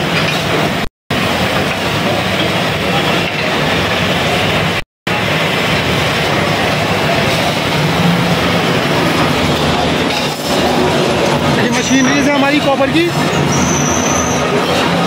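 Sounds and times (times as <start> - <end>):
clatter of metal being worked: 0.0 - 0.8, 8.9 - 15.0
metal lathes running: 0.0 - 15.0.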